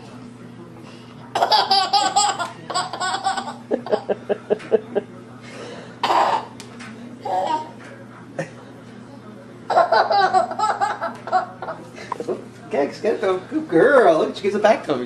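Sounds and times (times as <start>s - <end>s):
baby laughing: 1.4s - 4.1s, 6.0s - 6.5s, 9.7s - 11.8s.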